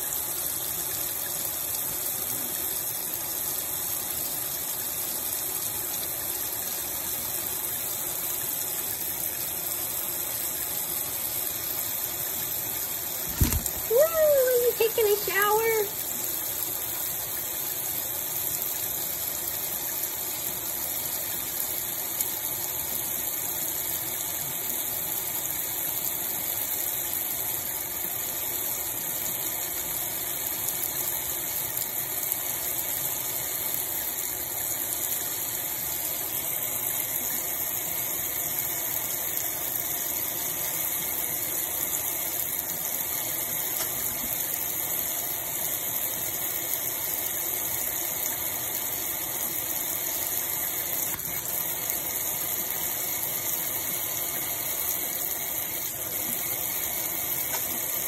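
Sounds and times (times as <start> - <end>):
sink spray head running: 12.8 - 16.0, 41.8 - 58.0.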